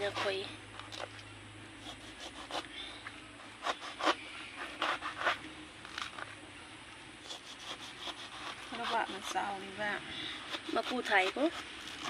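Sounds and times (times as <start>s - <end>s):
knife cutting through fruit rind: 3.4s - 6.2s, 7.2s - 9.6s, 10.4s - 12.0s.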